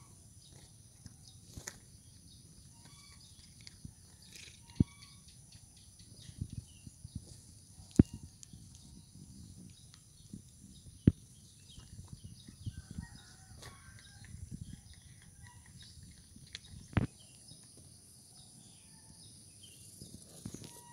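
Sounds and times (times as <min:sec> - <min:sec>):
cat crunching dry kibble: 0:14.0 - 0:17.2.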